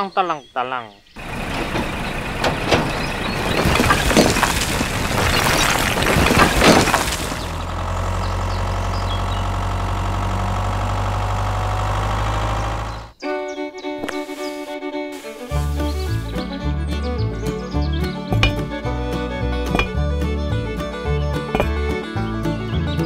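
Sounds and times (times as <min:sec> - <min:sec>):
tractor engine idling: 0:01.2 - 0:13.2, 0:15.4 - 0:23.0
miniature bricks clattering: 0:03.5 - 0:07.6.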